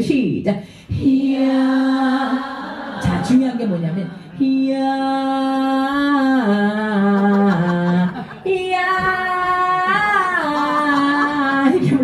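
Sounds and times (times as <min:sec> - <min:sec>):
woman singing unaccompanied: 0:04.4 - 0:12.0.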